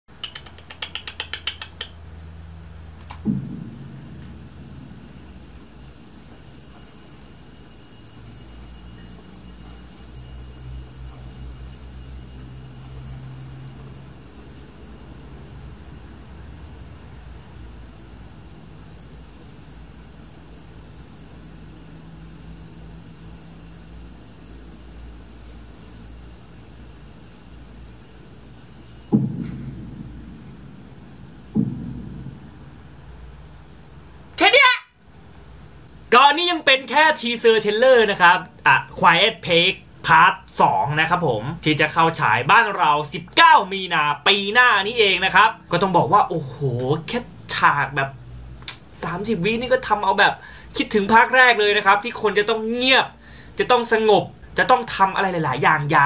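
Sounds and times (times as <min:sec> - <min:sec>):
quick run of clicks: 0:00.1 - 0:02.0, 0:03.0 - 0:03.3
faint high-pitched whine: 0:01.8 - 0:56.0
low steady drone: 0:03.1 - 0:33.8
low boom: 0:03.2 - 0:08.6, 0:29.1 - 0:33.3.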